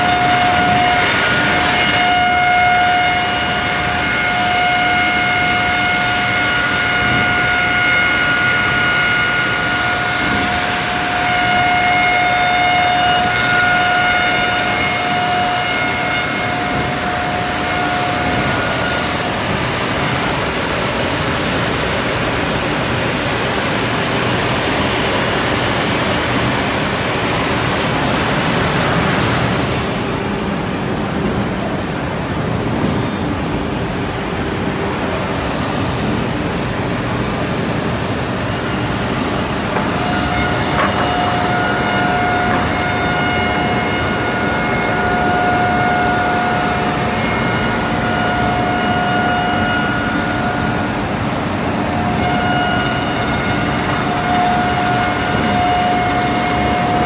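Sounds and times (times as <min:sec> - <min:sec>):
machine spindle high whine: 0:00.0 - 0:30.5, 0:31.8 - 0:57.0
wood machining rushing noise: 0:39.1 - 0:44.5, 0:51.8 - 0:57.0.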